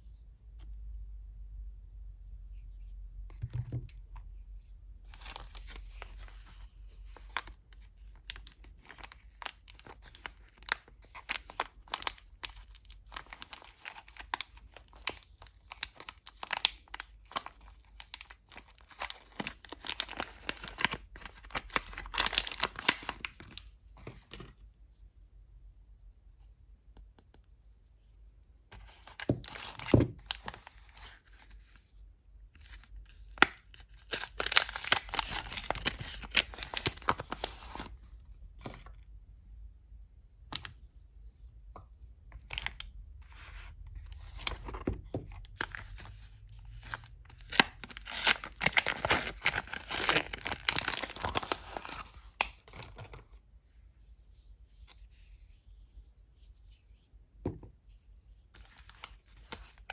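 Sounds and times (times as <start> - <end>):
paper wrappers crinkling: 5.1 - 23.7, 33.4 - 37.9, 43.9 - 53.3.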